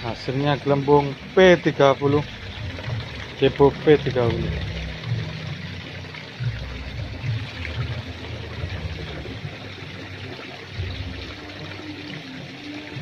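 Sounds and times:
low rumbles: 0.0s - 10.2s
water bubbling and splashing: 0.0s - 13.0s.

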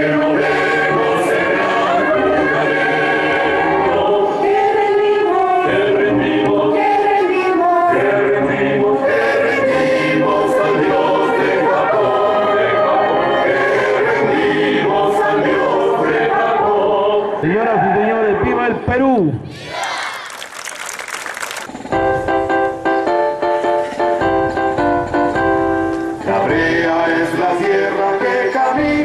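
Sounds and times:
group of voices singing: 0.0s - 18.2s, 26.2s - 29.0s.

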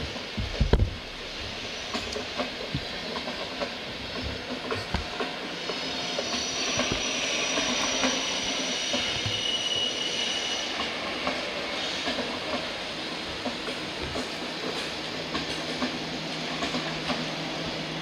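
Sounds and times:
train wheels clacking over rail joints: 0.0s - 17.9s
high wheel squeal: 5.5s - 12.1s.

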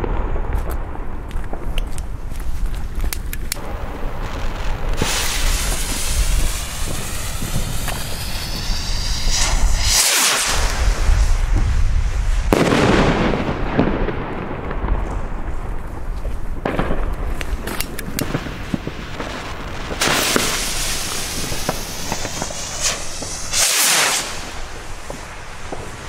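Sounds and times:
fireworks popping: 0.0s - 26.0s
firework hiss: 3.5s - 13.8s, 17.4s - 26.0s
firework burst: 3.6s - 15.5s, 16.6s - 26.0s.

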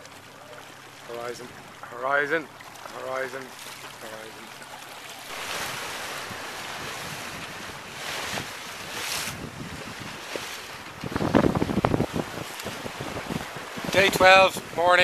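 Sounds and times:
open sea water: 0.0s - 15.0s
wind buffeting microphone: 5.3s - 15.0s.

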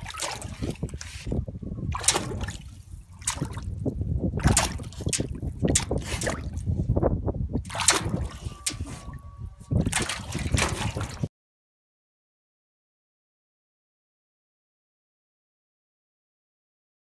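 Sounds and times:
paw splashing in water: 0.0s - 3.8s, 4.4s - 6.6s, 7.7s - 9.1s, 9.8s - 11.3s.

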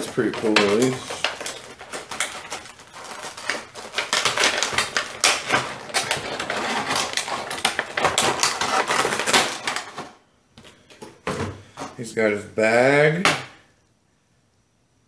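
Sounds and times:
plastic packaging crackling and clicking: 0.0s - 11.2s.

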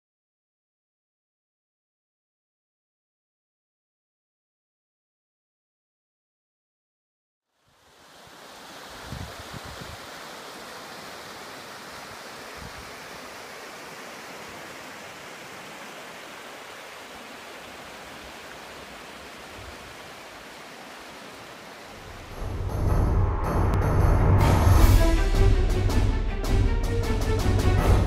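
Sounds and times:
rushing floodwater: 7.7s - 22.7s.

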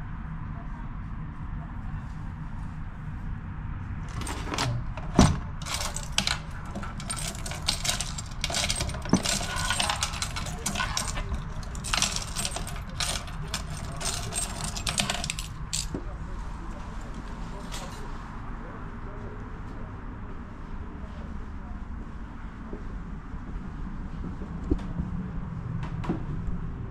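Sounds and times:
keys jangling against metal: 4.1s - 16.0s, 16.7s - 18.1s.

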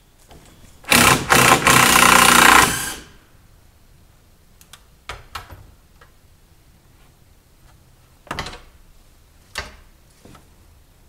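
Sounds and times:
power driver driving screw into wood: 0.9s - 3.1s.

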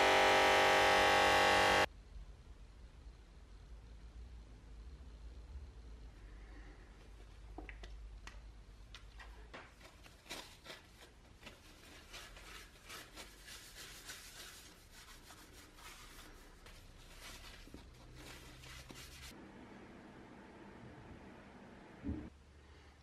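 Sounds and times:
paper towel wiping metal: 10.1s - 19.4s.

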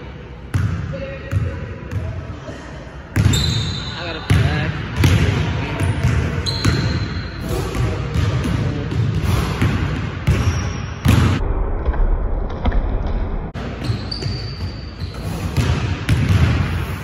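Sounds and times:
basketball bouncing on wooden floor: 15.6s - 16.7s.

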